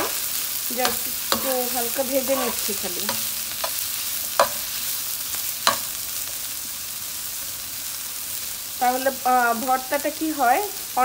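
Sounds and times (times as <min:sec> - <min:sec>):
onions sizzling in a frying pan: 0:00.0 - 0:11.0
spoon knocking against pan: 0:00.8 - 0:01.6, 0:04.4 - 0:04.7, 0:05.6 - 0:06.0.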